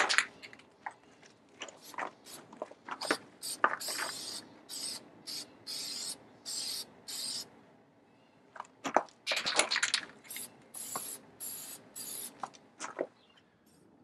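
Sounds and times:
aerosol spray can hissing: 3.4 - 7.5, 10.3 - 12.4.

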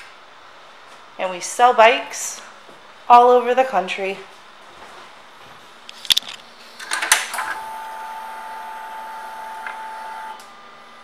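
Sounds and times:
fuel pump electric whine: 6.6 - 11.0.

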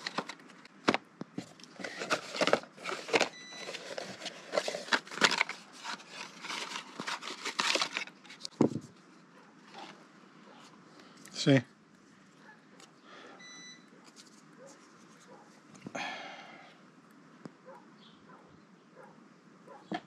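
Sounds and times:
cardboard rustling and scraping: 0.0 - 9.0.

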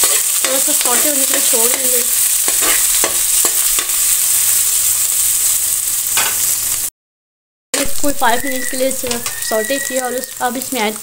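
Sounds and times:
steel spoon scraping a pan: 0.0 - 4.5, 7.8 - 10.2
onions sizzling in hot oil: 0.0 - 6.9, 7.8 - 11.0.

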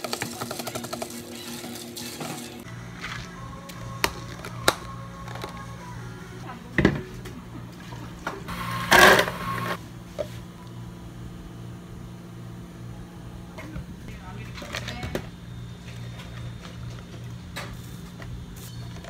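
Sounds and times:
plastic cups clicking and knocking: 0.0 - 1.3
soft background music: 2.4 - 6.8.

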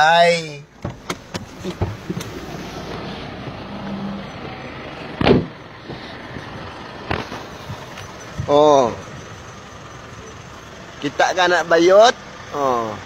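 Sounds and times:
vehicle rumble: 0.0 - 13.0
heavy thump: 0.8 - 2.4, 5.2 - 6.0.

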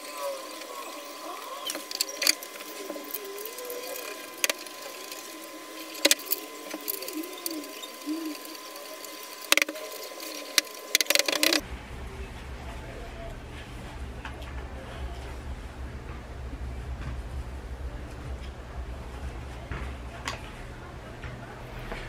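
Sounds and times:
steady thin tone: 0.0 - 13.9
faint wavering voice-like sounds: 0.0 - 22.0.

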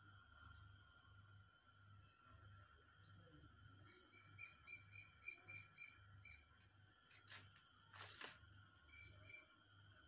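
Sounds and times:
small bird chirping: 3.8 - 6.5.

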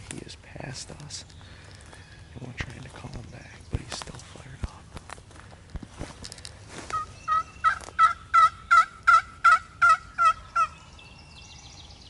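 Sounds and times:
turkey call yelps: 6.9 - 10.8.

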